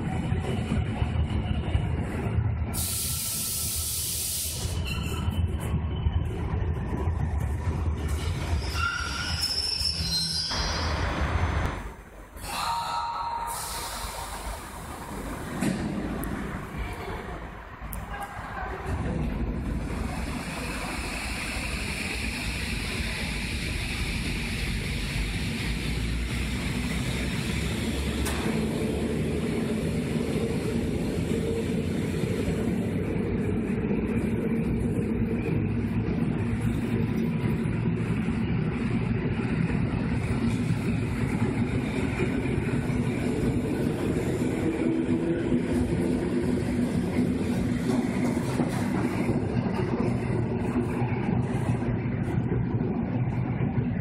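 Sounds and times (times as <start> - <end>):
train wheels running on rails: 0.0 - 54.0.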